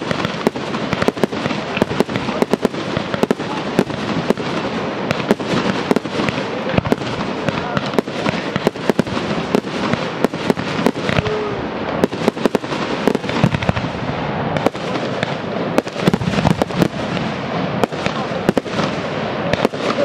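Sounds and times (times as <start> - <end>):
firework crackle: 0.0 - 20.0
firework shells bursting: 0.0 - 20.0.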